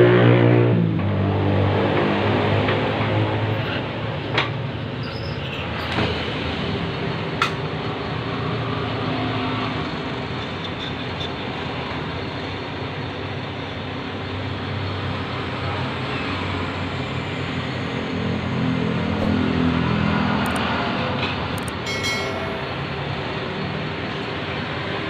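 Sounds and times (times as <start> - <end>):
sharp click: 20.4 - 20.7, 21.6 - 21.8.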